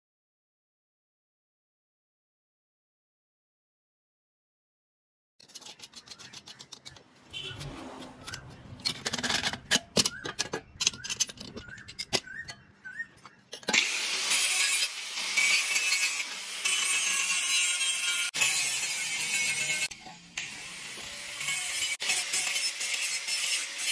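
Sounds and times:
steel parts clinking and knocking: 5.4s - 13.8s
metal scraping: 5.4s - 14.7s
angle grinder grinding steel: 5.4s - 23.9s.

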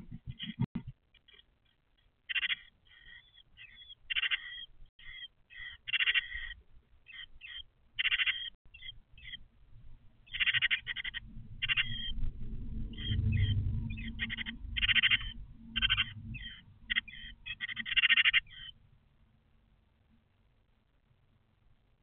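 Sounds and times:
nestlings begging calls: 2.3s - 9.4s, 10.3s - 12.2s, 12.9s - 18.8s.

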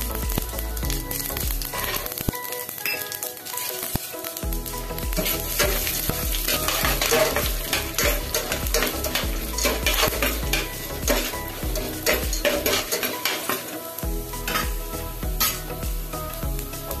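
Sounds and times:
food sizzling in oil: 0.0s - 17.0s
spatula scraping pan: 4.8s - 14.8s.

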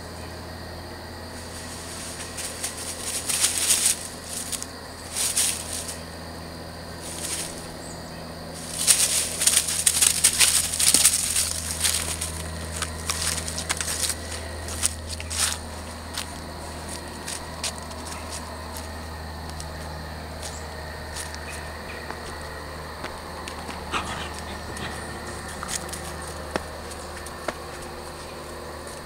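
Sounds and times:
steady low hum: 0.0s - 29.0s
dry leaves crunching: 1.4s - 6.0s, 7.0s - 7.8s, 8.6s - 21.7s.

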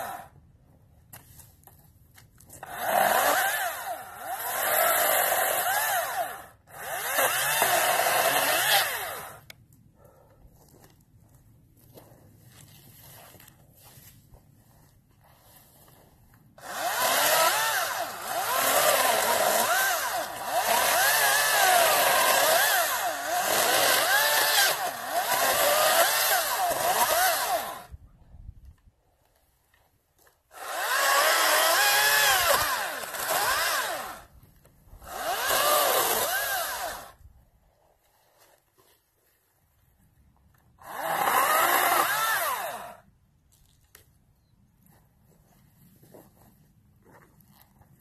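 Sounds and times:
battery chainsaw cutting wood: 0.0s - 0.3s, 2.6s - 9.6s, 16.6s - 28.0s, 30.5s - 37.2s, 40.8s - 43.1s.

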